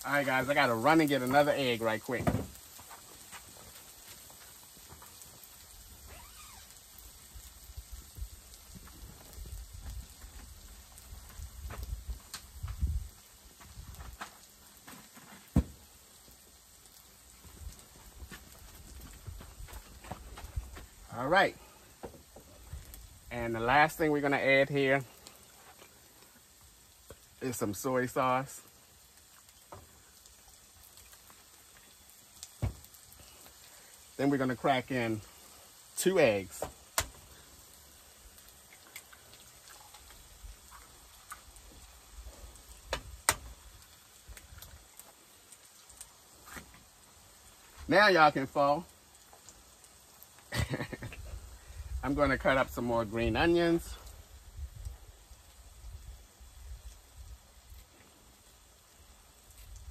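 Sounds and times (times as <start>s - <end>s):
frying crackles: 0.0s - 59.9s
footsteps on grass and sand: 2.8s - 5.5s, 17.6s - 21.0s.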